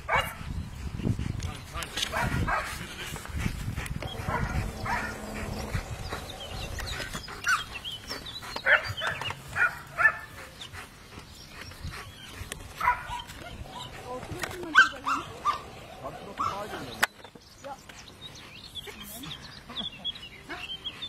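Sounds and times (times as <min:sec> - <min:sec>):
dogs barking: 0:00.0 - 0:00.4, 0:02.1 - 0:02.8, 0:04.0 - 0:10.5, 0:12.7 - 0:16.9.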